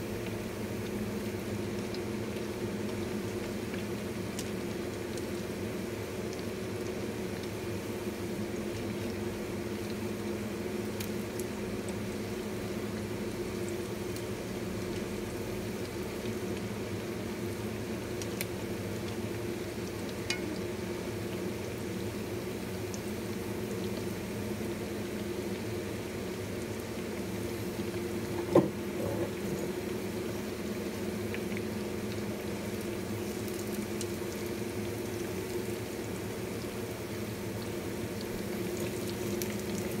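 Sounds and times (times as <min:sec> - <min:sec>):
oil bubbling and sizzling: 0:00.0 - 0:40.0
steady low hum: 0:17.2 - 0:21.4.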